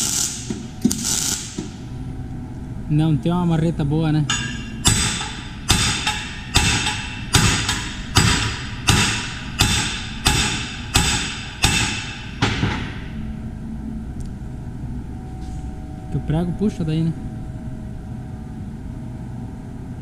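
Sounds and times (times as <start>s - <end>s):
hammer striking steel plate: 4.3s - 13.0s.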